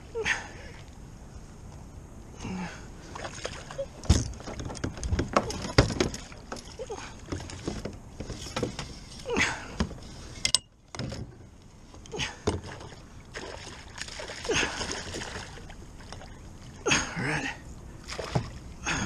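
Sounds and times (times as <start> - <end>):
fish splashing and thrashing: 3.1 - 9.0, 12.0 - 16.9, 18.0 - 18.7
gear knocking against kayak: 4.0 - 6.7.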